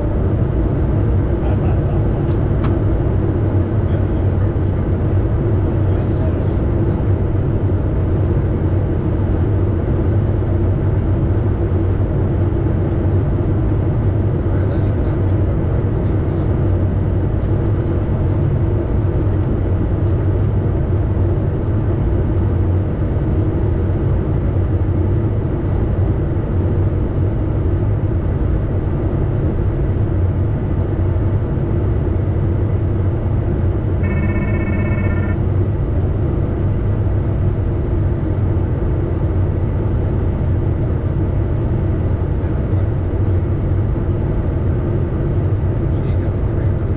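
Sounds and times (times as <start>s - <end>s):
jet cockpit noise: 0.0s - 46.9s
short electronic tone: 34.0s - 35.5s.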